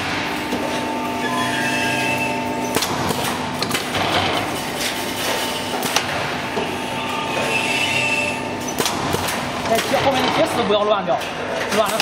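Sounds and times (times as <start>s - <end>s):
machine mechanical hum: 0.0s - 12.0s
sharp mechanical knocks: 2.6s - 4.4s, 8.6s - 10.5s.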